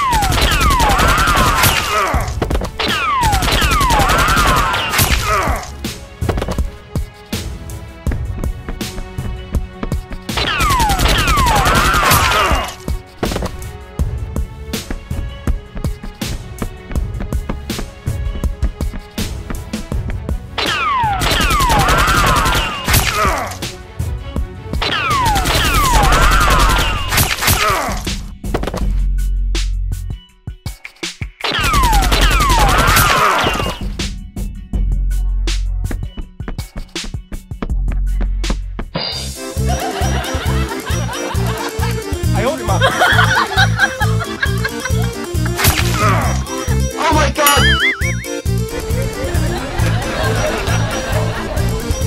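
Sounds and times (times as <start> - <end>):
background music: 0.0 - 52.0
falling whistling tones: 47.5 - 48.5.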